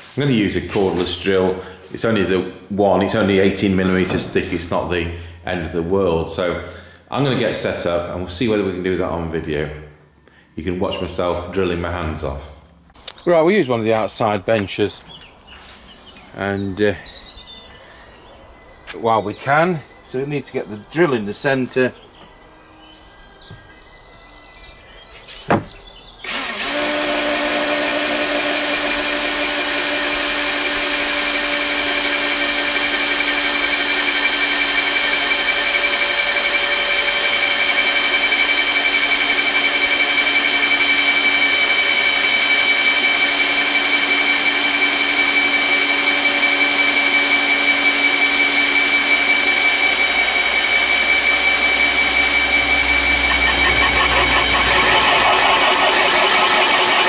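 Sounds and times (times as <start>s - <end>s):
cordless drill with hole saw: 26.2s - 57.0s.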